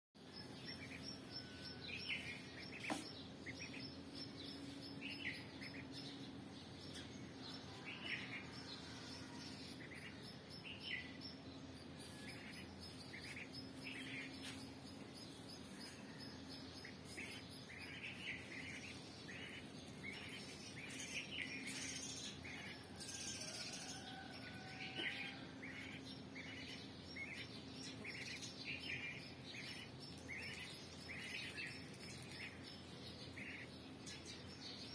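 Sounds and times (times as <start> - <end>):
duckling peeping: 16.8 - 22.8, 24.9 - 32.6, 33.3 - 34.3.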